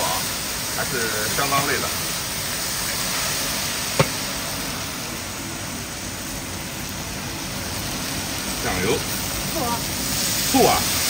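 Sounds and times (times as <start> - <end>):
chicken sizzling in a wok: 0.0 - 11.0
sharp metallic knock: 4.0 - 4.2.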